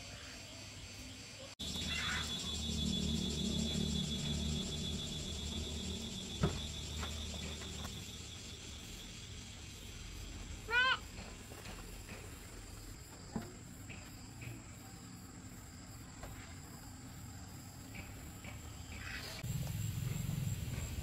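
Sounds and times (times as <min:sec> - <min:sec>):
insects chirring: 0:00.0 - 0:21.0
animal call: 0:01.6 - 0:03.4
low rumble: 0:01.6 - 0:09.0.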